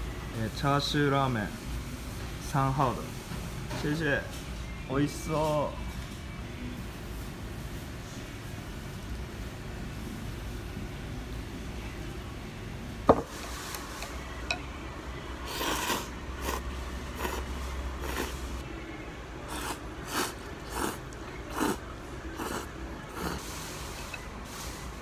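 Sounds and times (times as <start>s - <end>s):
person slurping noodles: 15.4s - 18.6s, 19.5s - 24.2s.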